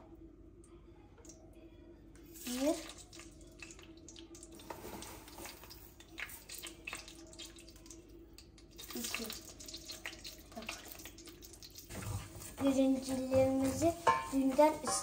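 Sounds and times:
faint steady hum: 0.0s - 15.0s
metal ladle scraping pot: 13.3s - 15.0s.

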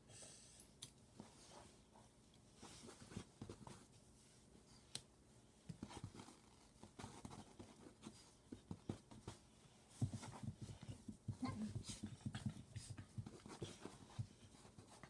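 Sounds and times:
hands rubbing dog's coat: 5.7s - 15.0s.

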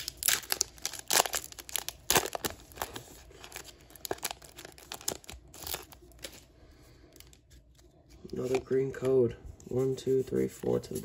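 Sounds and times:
foil wrapper tearing and crinkling: 0.0s - 6.4s.

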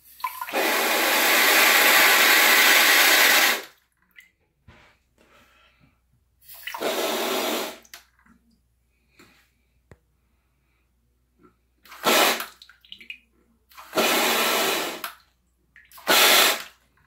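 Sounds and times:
bidet water spraying on plastic: 11.8s - 12.7s.

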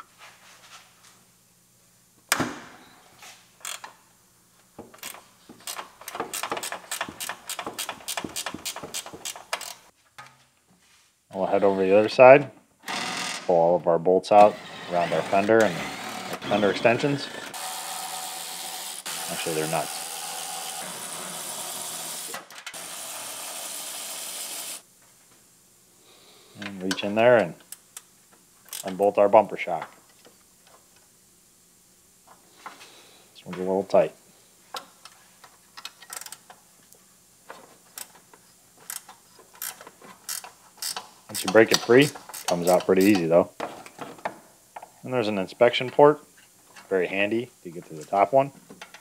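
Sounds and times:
hand ratchet clicking: 5.0s - 9.8s, 35.8s - 36.5s, 38.8s - 43.2s
power ratchet spinning nuts: 5.0s - 9.8s, 14.5s - 24.8s, 38.8s - 43.2s.

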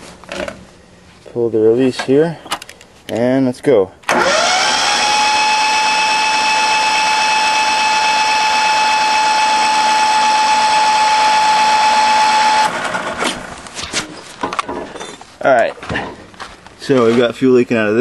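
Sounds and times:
starter motor cranking engine: 4.1s - 13.5s.

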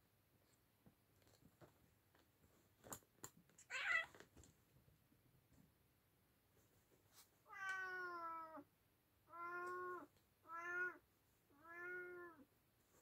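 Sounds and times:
cat meowing: 3.7s - 4.2s, 7.5s - 8.6s, 9.3s - 12.4s.

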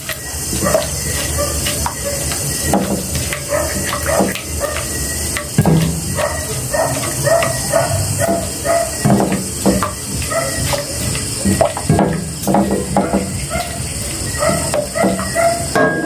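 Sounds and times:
spatula scraping in a pan: 0.0s - 15.4s
steady hiss: 0.0s - 16.0s.

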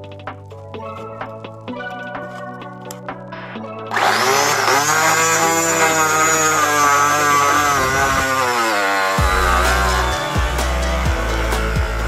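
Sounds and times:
motor pump whining: 3.9s - 12.0s.

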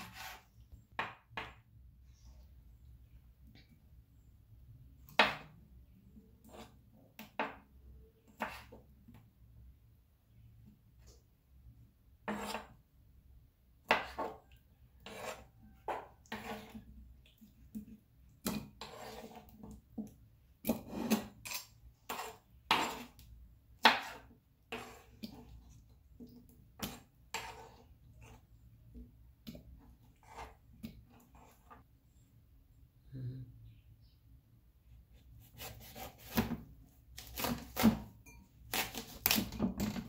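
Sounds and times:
knife chopping on wooden table: 5.1s - 5.6s, 8.4s - 8.8s, 12.2s - 12.7s, 13.8s - 14.4s, 20.6s - 23.2s, 23.8s - 25.4s, 35.4s - 38.1s, 38.7s - 40.0s.

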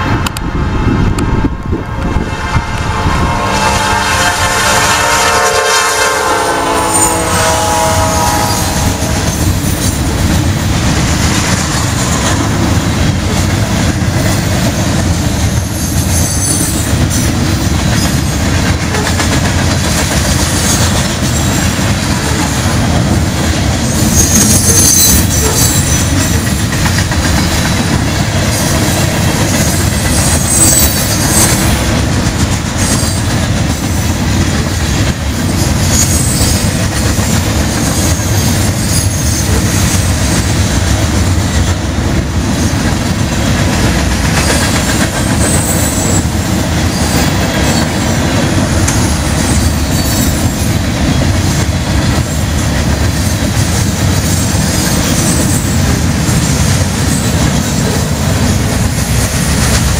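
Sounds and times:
freight train rumbling past: 0.0s - 59.9s
train wheel squeals: 15.4s - 18.4s, 23.9s - 27.8s, 28.6s - 31.8s, 32.8s - 33.3s, 35.5s - 40.4s, 44.4s - 48.0s, 48.8s - 50.7s.

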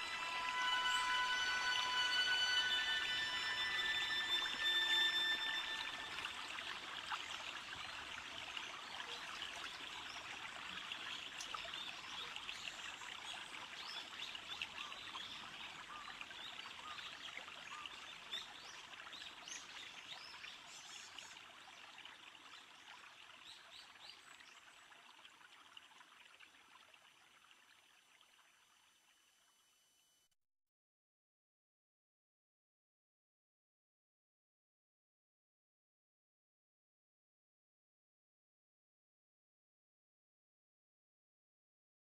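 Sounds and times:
held cluster of tones: 0.0s - 6.4s
trickling water-like drips: 2.6s - 28.8s.

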